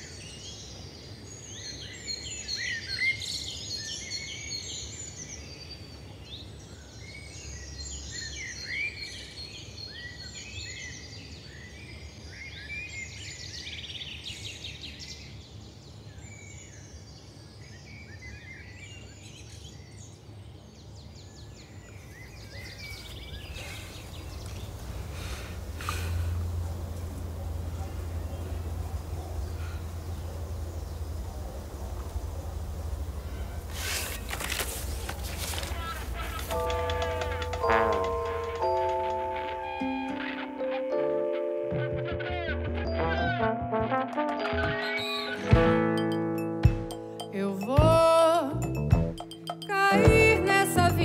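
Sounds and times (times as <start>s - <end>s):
small birds chirping: 0.0s - 41.0s
low background hum: 19.1s - 40.2s
noisy rustles: 22.4s - 38.2s.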